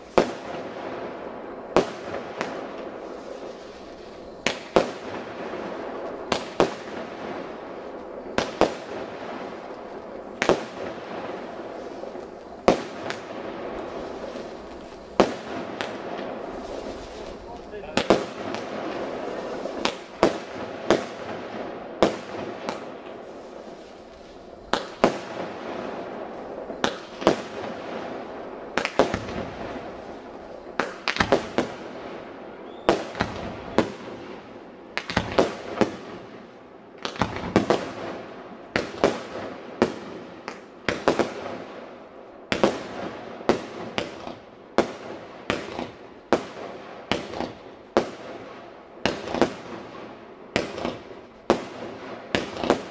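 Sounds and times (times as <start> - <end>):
fireworks bangs: 0.0 - 52.9.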